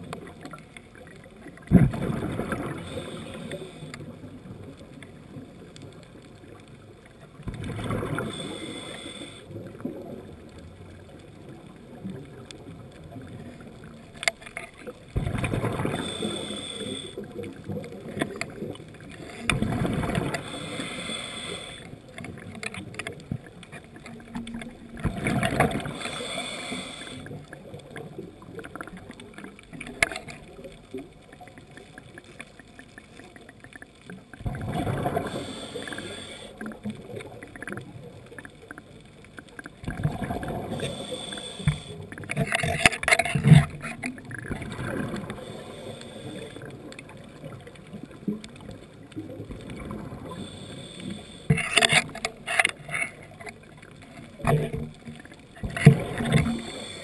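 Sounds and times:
exhaled bubbles rushing: 1.0 - 3.2, 14.8 - 16.2, 17.2 - 20.6, 34.3 - 35.6, 39.7 - 41.0, 43.3 - 45.6
regulator inhale hiss with whistle: 2.8 - 4.0, 8.2 - 9.5, 15.9 - 17.2, 20.4 - 21.9, 25.9 - 27.4, 35.2 - 36.6, 40.7 - 42.1, 45.4 - 46.6, 50.3 - 51.6, 56.5 - 57.0.

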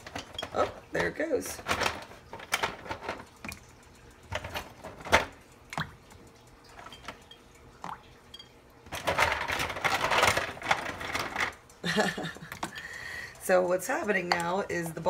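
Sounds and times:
ice cubes clinking and rattling: 8.9 - 12.0.

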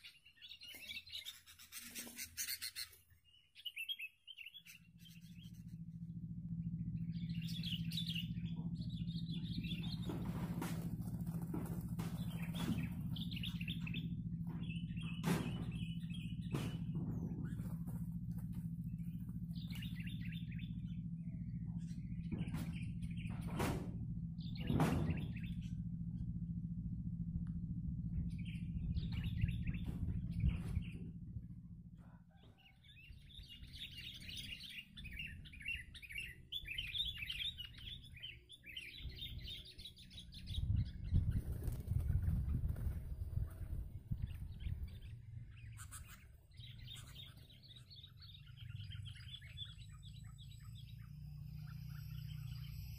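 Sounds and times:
birds chirping bubbly notes: 2.2 - 10.2, 12.0 - 23.5, 32.5 - 52.9
low rumble: 4.5 - 52.9
sharp knocks: 9.9 - 18.1, 22.3 - 25.6.

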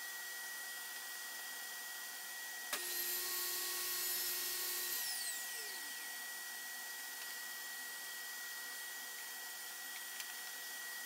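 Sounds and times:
table saw motor whining: 2.7 - 6.7.

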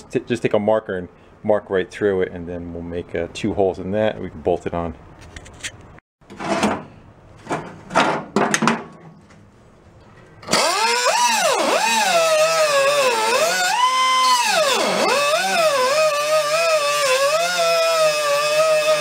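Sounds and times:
cutoff wheel whining: 10.4 - 19.0.

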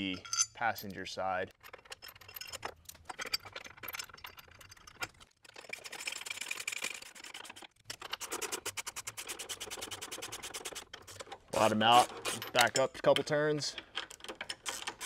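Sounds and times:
hand ratchet clicking: 13.8 - 15.0.

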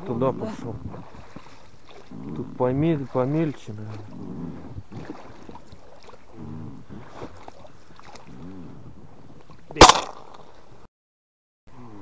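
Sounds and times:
low steady background: 0.0 - 10.9
shotgun shot: 9.8 - 10.4.

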